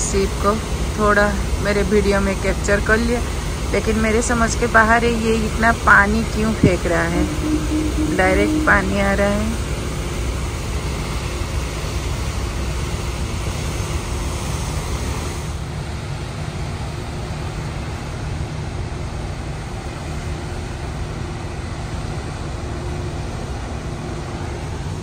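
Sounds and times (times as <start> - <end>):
faint machinery hum: 0.0 - 9.6.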